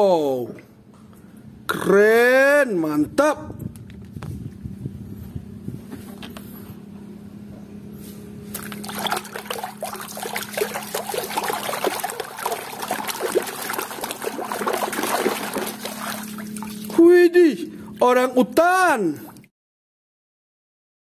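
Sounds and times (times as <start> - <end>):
hand scrubbing toy underwater: 8.5 - 17.0
water splashing in a plastic basin: 8.5 - 17.0.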